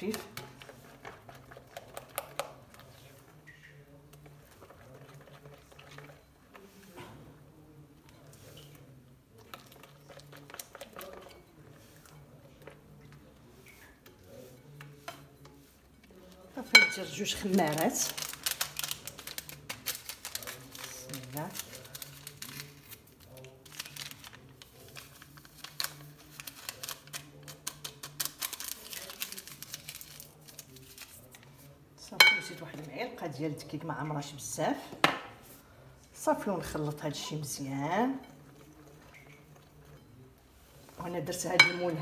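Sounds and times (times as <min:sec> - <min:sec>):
whisk squishing batter: 0:00.0 - 0:31.9, 0:36.4 - 0:42.0
paper sachet tearing and crinkling: 0:17.5 - 0:31.5.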